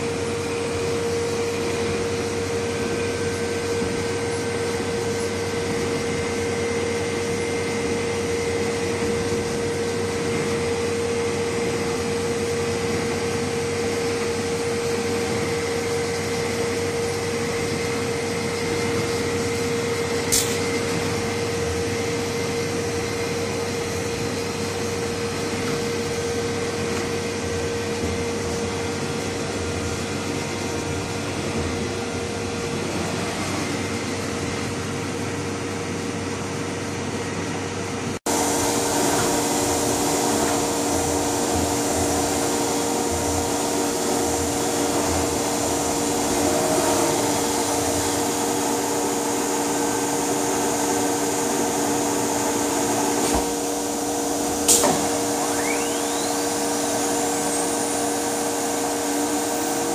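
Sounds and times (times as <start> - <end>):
router spindle motor whine: 38.3 - 59.9
faint rising whistle: 55.3 - 58.2.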